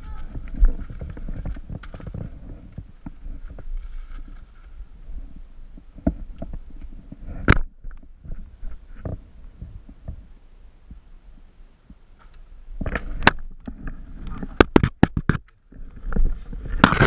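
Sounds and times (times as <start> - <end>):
sharp crack: 16.7 - 17.0.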